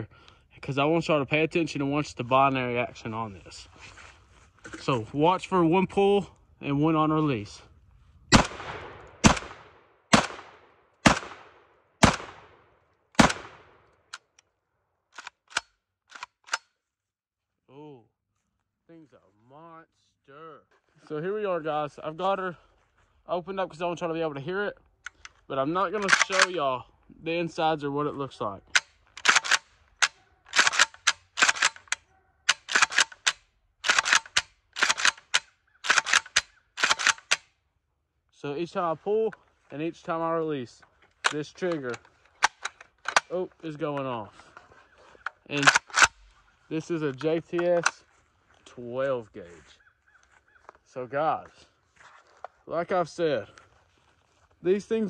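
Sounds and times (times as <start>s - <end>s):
shotgun shots with echo: 8.3s - 12.6s, 13.2s - 13.8s
shotgun action metallic clacks: 26.0s - 26.6s, 28.8s - 37.4s, 45.6s - 46.2s.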